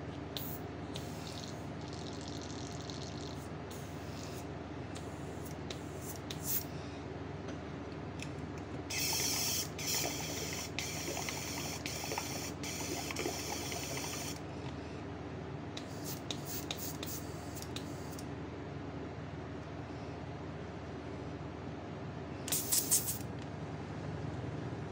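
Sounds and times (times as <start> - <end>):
steady low hum: 0.0 - 24.9
airbrush spraying paint: 0.4 - 6.7, 8.9 - 14.4, 15.8 - 18.2, 22.5 - 23.2.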